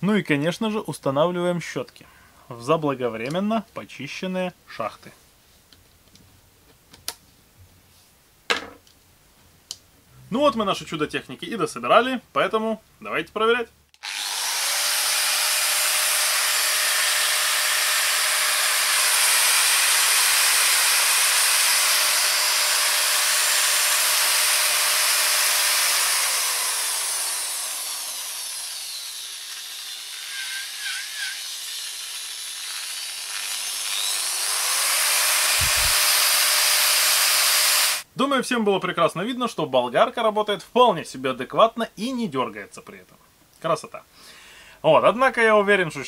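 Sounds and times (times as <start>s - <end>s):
angle grinder motor whining: 14.0s - 38.0s.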